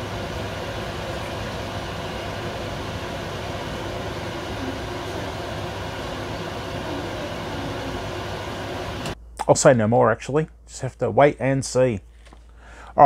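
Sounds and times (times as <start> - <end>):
gas burner rushing: 0.0 - 9.2.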